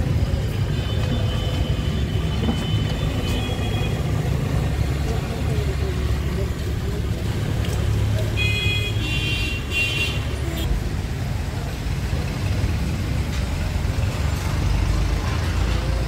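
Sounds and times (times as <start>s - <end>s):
passing cars rumbling: 10.2s - 16.0s.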